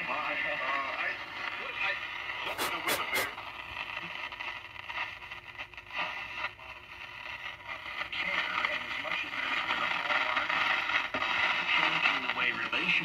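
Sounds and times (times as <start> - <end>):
radio static hiss and crackle: 0.0 - 13.0.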